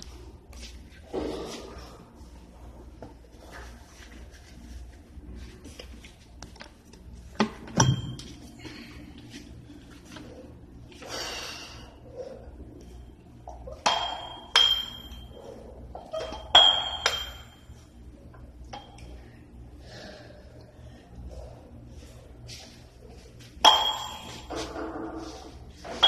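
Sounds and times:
metal weight plates clinking: 16.0 - 17.7, 23.6 - 25.0.

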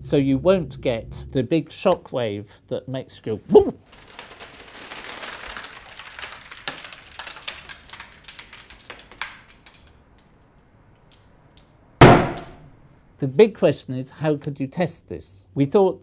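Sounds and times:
crackling fizzing with sharp clicks: 3.9 - 12.6.

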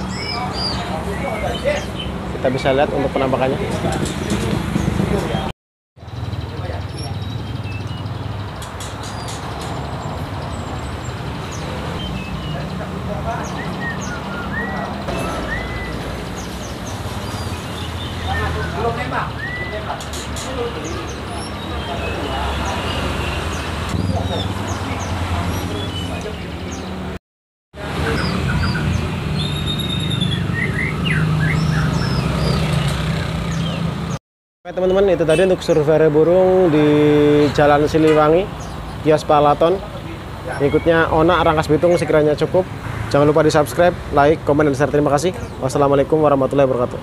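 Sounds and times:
songbirds chirping and whistling: 0.0 - 27.1, 27.8 - 42.5
road traffic rumble: 0.0 - 27.2, 27.8 - 47.0.

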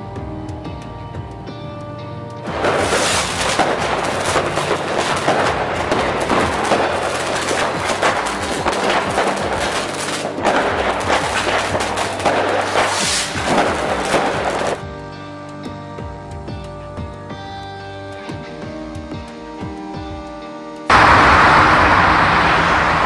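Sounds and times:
fireworks cracking and banging: 2.5 - 14.8, 20.9 - 23.0.

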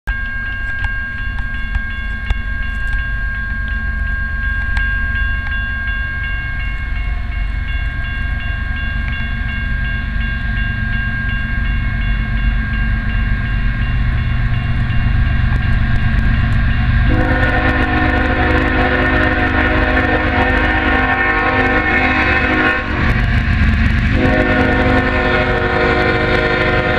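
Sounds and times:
freight train rumble: 0.1 - 26.9
high ringing pulsing tone: 0.1 - 26.9
locomotive horn: 17.0 - 23.4, 24.1 - 26.9.

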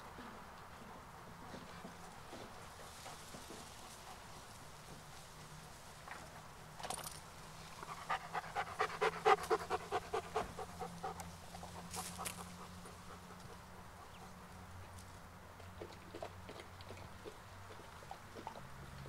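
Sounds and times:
dog panting: 7.8 - 14.4.

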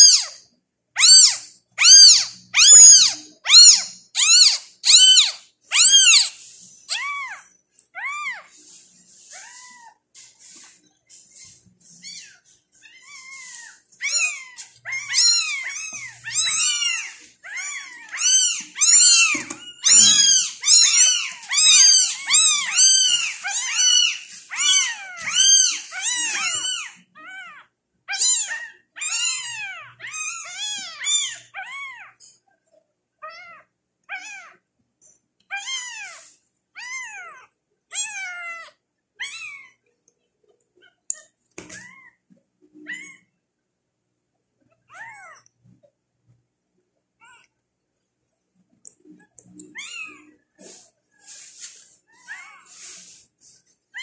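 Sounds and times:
kittens meowing: 0.0 - 0.4, 1.0 - 10.0, 11.4 - 32.2, 42.8 - 43.3, 49.5 - 50.8.

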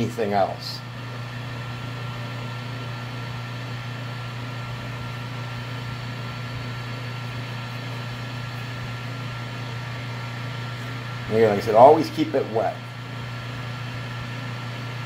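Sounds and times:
lathe motor humming and whining: 0.0 - 15.0.

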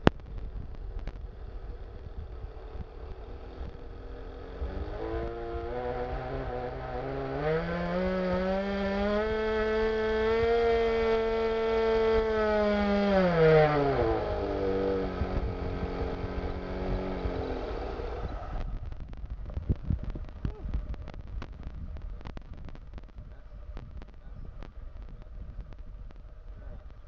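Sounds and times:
model rotary engine running: 0.0 - 18.6.

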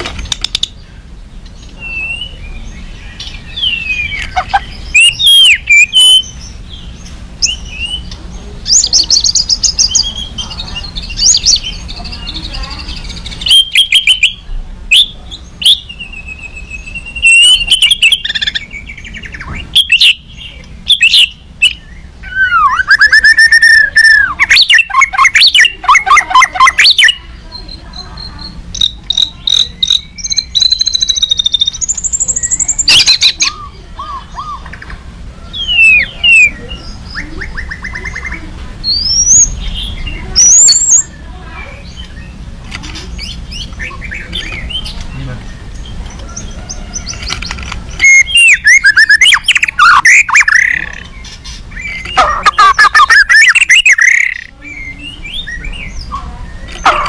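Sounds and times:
bird singing whistles and rattles: 12.8 - 20.2, 20.8 - 33.6, 41.9 - 57.0.

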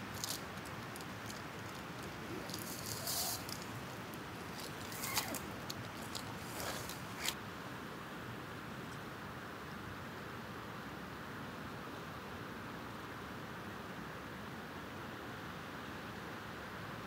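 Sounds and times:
crisp crinkles: 0.0 - 7.4
steady hiss: 0.0 - 7.4.

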